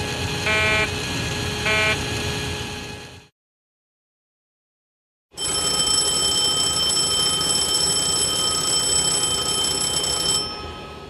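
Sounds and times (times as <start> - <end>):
fire warning bell ringing: 5.4 - 11.0.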